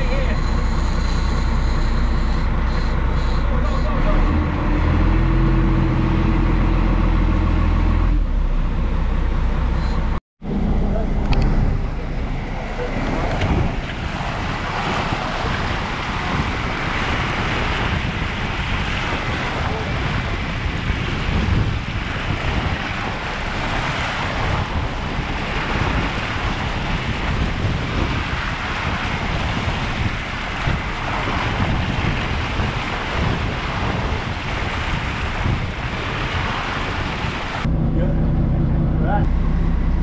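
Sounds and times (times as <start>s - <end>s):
boat wake splashing: 0.0s - 40.0s
low engine hum: 0.0s - 40.0s
wind buffeting microphone: 10.6s - 40.0s.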